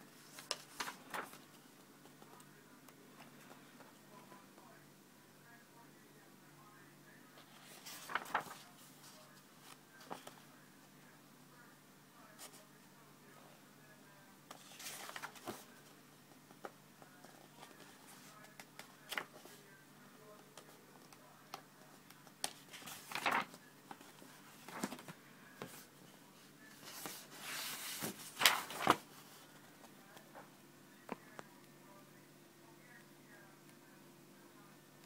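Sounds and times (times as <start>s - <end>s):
book pages rustling: 0.1s - 2.5s, 7.4s - 10.5s, 14.5s - 15.8s, 16.4s - 19.6s, 20.6s - 30.2s.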